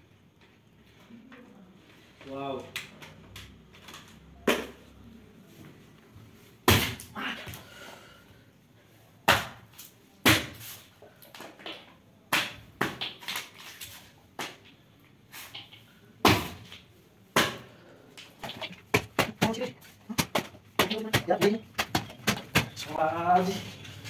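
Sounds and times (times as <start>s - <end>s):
foot stamping on plastic pouches: 18.3s - 24.0s.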